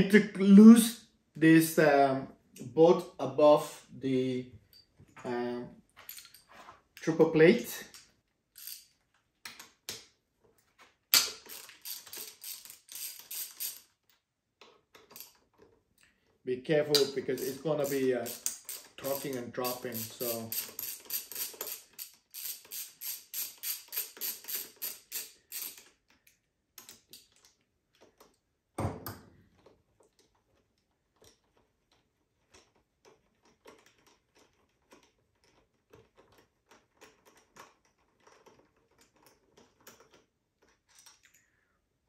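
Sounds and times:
socket ratchet clicking: 0:07.9 - 0:08.9, 0:11.1 - 0:13.9, 0:16.9 - 0:26.0.

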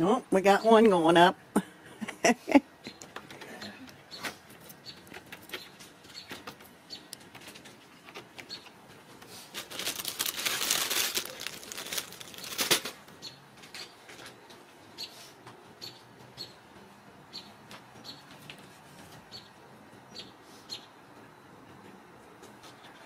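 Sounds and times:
kittens clawing and scratching: 0:02.9 - 0:14.4
rustling: 0:09.2 - 0:13.1.

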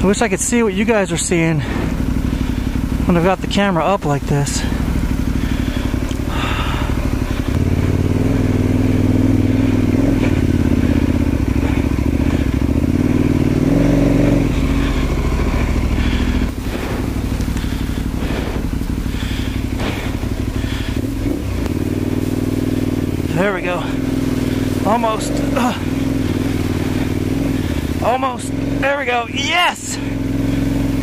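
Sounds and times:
motorcycle engine under load: 0:00.0 - 0:31.0
bike clattering over rough ground: 0:09.6 - 0:31.0.

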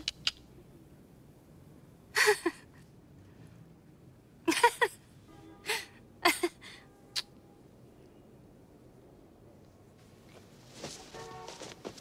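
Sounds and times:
woman laughing: 0:02.2 - 0:02.7, 0:04.5 - 0:05.0, 0:05.7 - 0:06.8.

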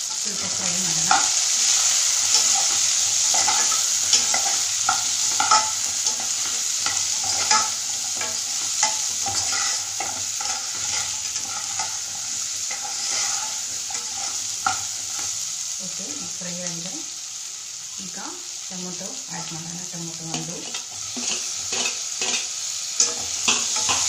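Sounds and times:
vegetables sizzling in hot oil: 0:00.0 - 0:24.0
metal ladle clinking and scraping pot: 0:02.2 - 0:15.3, 0:20.6 - 0:24.0.

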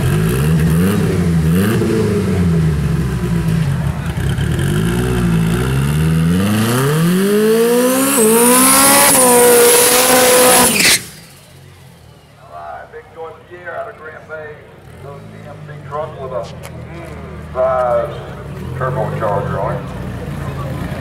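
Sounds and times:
truck engine revving and accelerating: 0:00.0 - 0:11.8.

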